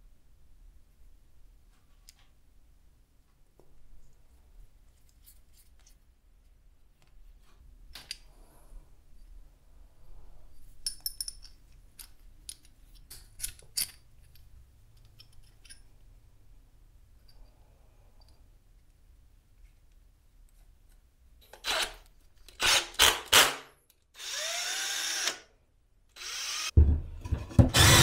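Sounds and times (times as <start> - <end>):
metal parts clicking and clinking: 10.8 - 15.9.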